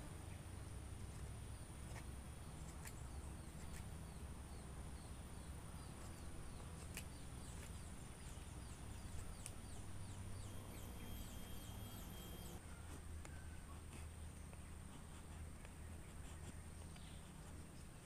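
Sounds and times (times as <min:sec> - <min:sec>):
insects droning: 0:00.1 - 0:12.6
knife cutting wooden stick: 0:06.0 - 0:07.8.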